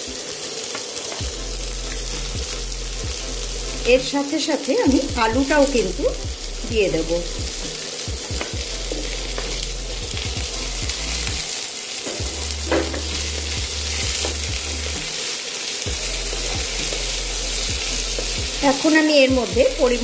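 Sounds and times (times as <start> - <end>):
potatoes and onions sizzling in oil: 0.0 - 20.0.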